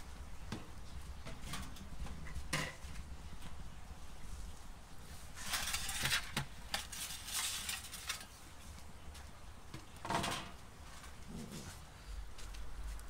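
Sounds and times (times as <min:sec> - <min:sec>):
metal peel scraping on stone: 0:05.4 - 0:08.3.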